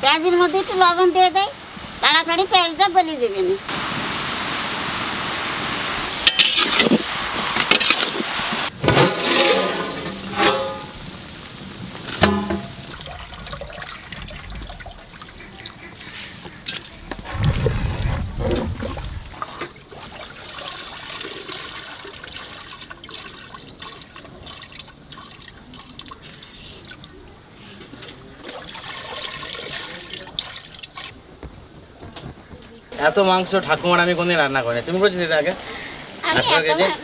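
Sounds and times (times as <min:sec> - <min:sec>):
pot of water boiling: 0:03.7 - 0:27.1
low rumble: 0:17.2 - 0:19.4.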